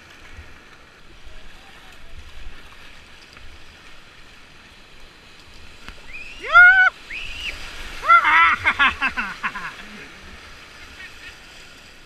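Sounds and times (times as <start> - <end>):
whitewater rushing: 5.9 - 12.0
person squealing: 6.4 - 7.0, 8.0 - 10.1.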